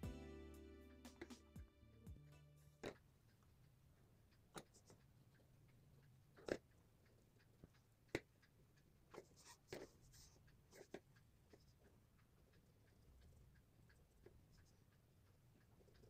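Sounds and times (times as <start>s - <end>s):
sharp ticks: 2.8s - 16.0s
pen scratching on paper: 9.1s - 11.8s.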